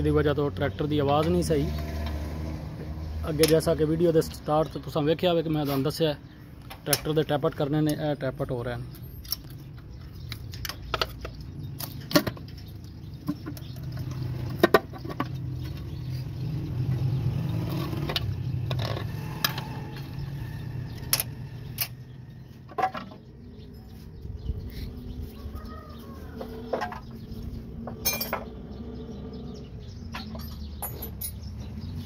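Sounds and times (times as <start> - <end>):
wrench and bolts clinking on metal: 27.9 - 28.5, 30.1 - 31.6.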